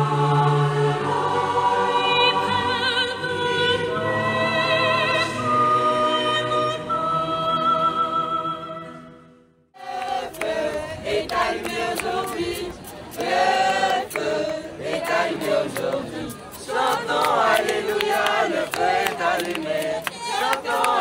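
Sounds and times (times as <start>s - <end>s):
crowd singing and chanting: 0.0s - 7.2s, 9.8s - 21.0s
congregation singing a slow chant: 0.0s - 7.7s, 9.8s - 21.0s
rhythmic handclaps: 9.8s - 21.0s.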